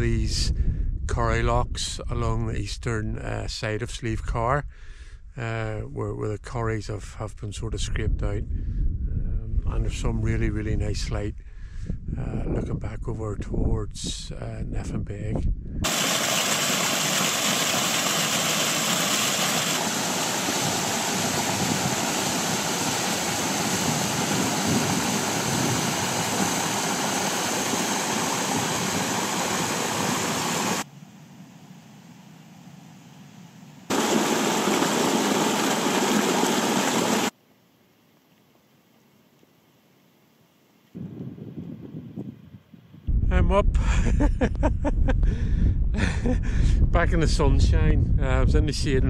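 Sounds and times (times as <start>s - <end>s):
water rushing over rocks: 15.8s - 30.8s, 33.9s - 37.3s.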